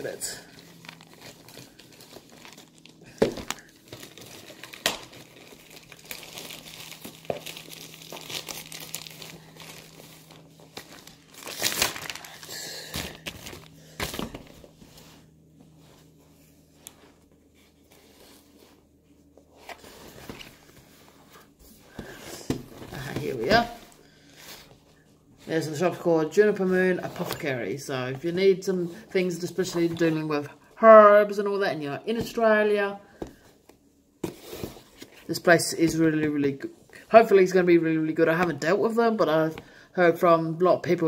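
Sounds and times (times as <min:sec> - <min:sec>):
packaging crinkling and tearing: 0:00.1 - 0:14.7.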